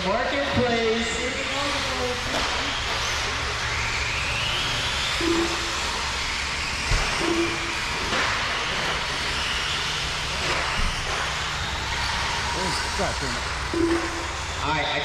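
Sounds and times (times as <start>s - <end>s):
electric motor whine: 0.0s - 15.0s
short low beeps: 5.1s - 6.1s, 7.1s - 7.9s, 13.6s - 14.7s.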